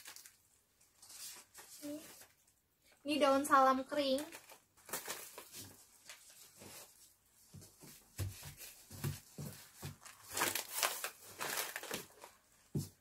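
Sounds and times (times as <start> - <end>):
plastic bags crinkling: 0.0 - 2.4, 4.0 - 7.1, 9.4 - 12.7.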